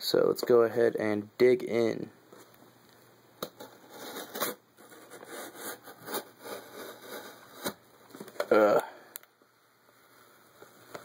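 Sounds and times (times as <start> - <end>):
knife cutting cardboard: 3.8 - 7.8.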